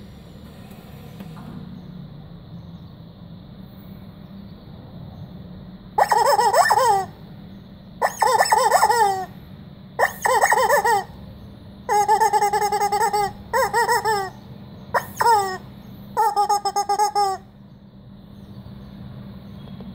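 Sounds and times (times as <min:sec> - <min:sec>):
rubber chicken toy squawking: 0:06.0 - 0:07.2, 0:08.0 - 0:09.4, 0:10.0 - 0:11.2, 0:11.9 - 0:17.5.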